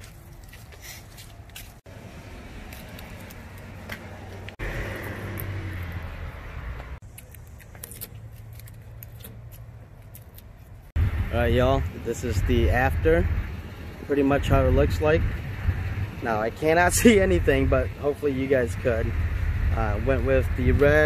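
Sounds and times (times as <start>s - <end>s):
low outdoor rumble: 8.2s - 21.0s.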